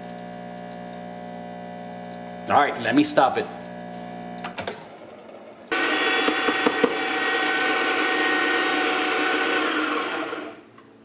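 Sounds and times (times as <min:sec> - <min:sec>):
espresso machine pump humming: 0:05.0 - 0:10.7
electric coffee grinder grinding: 0:05.7 - 0:10.7.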